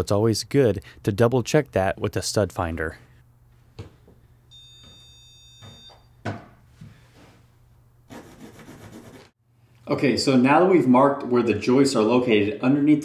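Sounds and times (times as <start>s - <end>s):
stud finder beeping: 4.5s - 6.2s
pencil scratching: 8.1s - 9.4s.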